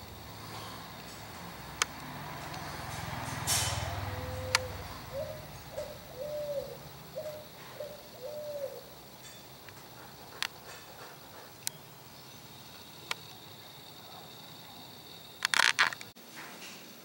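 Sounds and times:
bird calling: 0:03.7 - 0:16.1.

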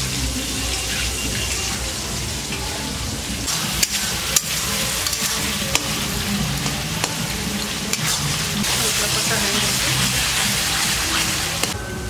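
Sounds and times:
curry sizzling in a pan: 0:00.0 - 0:11.8
spatula striking a pan: 0:03.8 - 0:06.0, 0:06.6 - 0:08.1.

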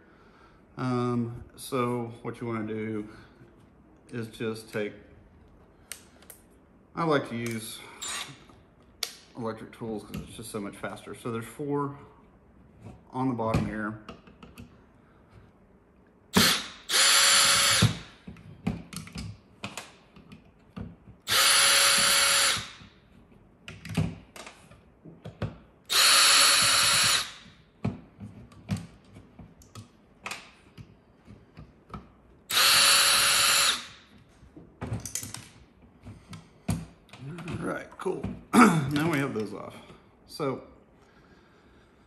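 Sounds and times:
drill motor whine: 0:16.4 - 0:18.0, 0:21.3 - 0:22.7, 0:25.9 - 0:27.4, 0:32.5 - 0:33.9.

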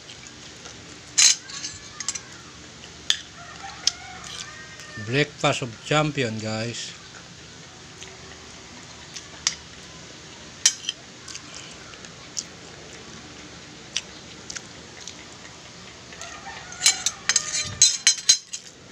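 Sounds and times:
cutlery clinking on glass plate: 0:01.2 - 0:02.2, 0:10.7 - 0:11.0, 0:16.8 - 0:18.7
chicken calling: 0:03.3 - 0:05.3, 0:16.1 - 0:18.4.

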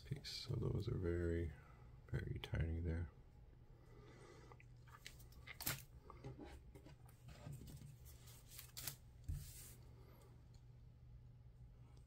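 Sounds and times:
paper rustling and crackling: 0:07.1 - 0:09.8.

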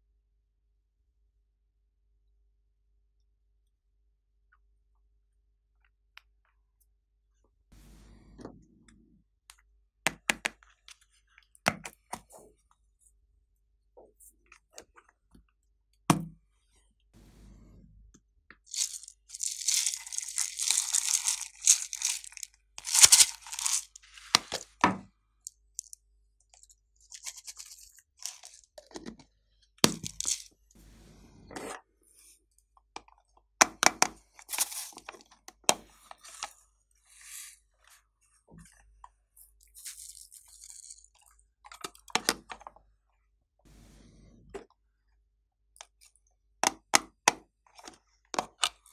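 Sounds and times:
glitter rattling as poured: 0:18.7 - 0:24.8, 0:25.8 - 0:28.8, 0:29.8 - 0:30.6.

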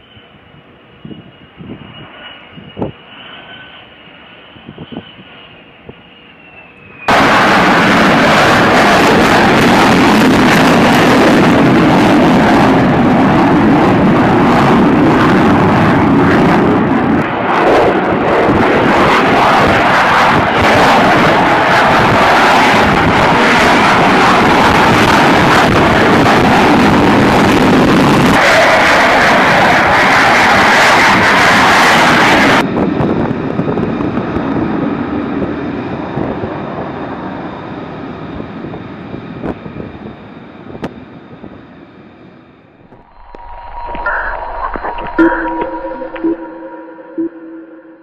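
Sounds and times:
jet passing close roar: 0:00.0 - 0:33.0, 0:42.9 - 0:48.0
jet engine whine: 0:00.0 - 0:48.0.

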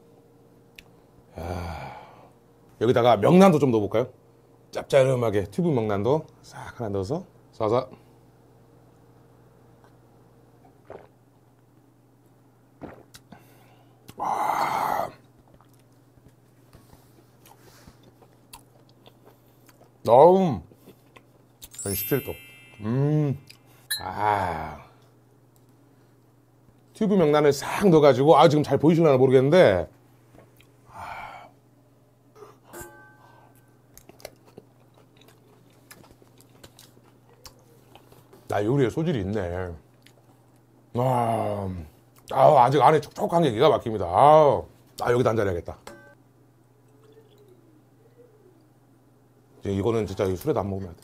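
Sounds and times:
man exhaling loudly: 0:01.3 - 0:02.3
man chewing: 0:10.7 - 0:11.1, 0:12.8 - 0:13.4, 0:15.2 - 0:16.4, 0:17.1 - 0:20.0, 0:20.7 - 0:21.8, 0:33.9 - 0:38.4
person swallowing: 0:10.8 - 0:11.2, 0:12.8 - 0:13.3.

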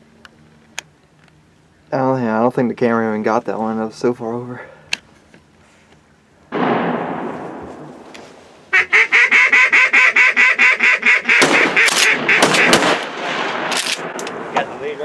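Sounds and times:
sudden loud noise: 0:06.5 - 0:08.7
duck quacking: 0:08.7 - 0:12.8.

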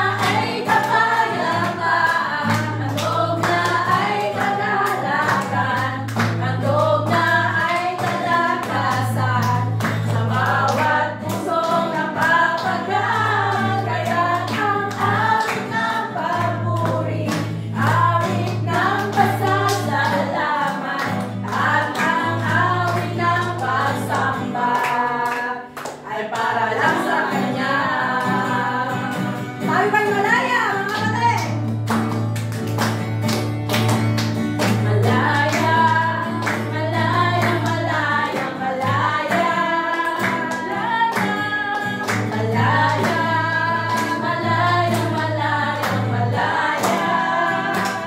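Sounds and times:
women singing together: 0:00.0 - 0:31.5, 0:34.6 - 0:48.0
hand clapping: 0:00.0 - 0:48.0
strummed acoustic guitar: 0:00.0 - 0:48.0.

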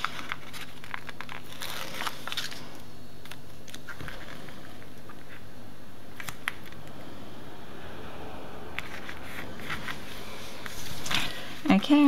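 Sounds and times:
paper rustling: 0:00.0 - 0:05.5, 0:08.8 - 0:11.8
steady low hum: 0:00.0 - 0:12.0.

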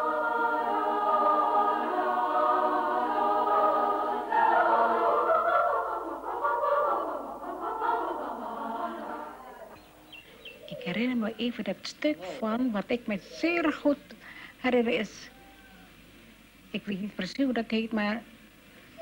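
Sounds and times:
women's choir singing a cappella: 0:00.0 - 0:09.8.

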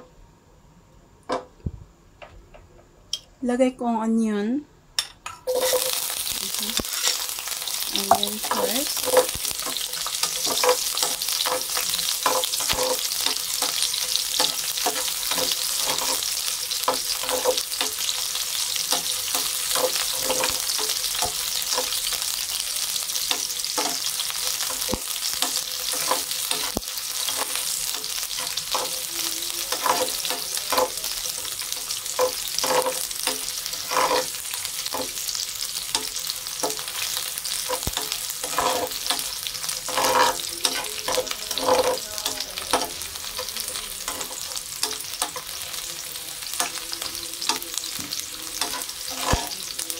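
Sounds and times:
onion sizzling in oil: 0:05.4 - 0:49.9
metal spatula scraping pan: 0:05.5 - 0:22.3, 0:23.2 - 0:45.8, 0:46.5 - 0:49.9.

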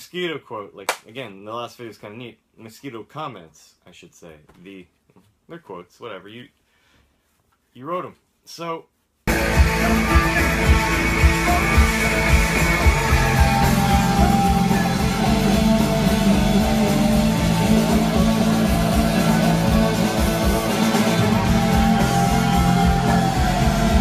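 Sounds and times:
rock music with guitar and drums: 0:09.3 - 0:24.0.

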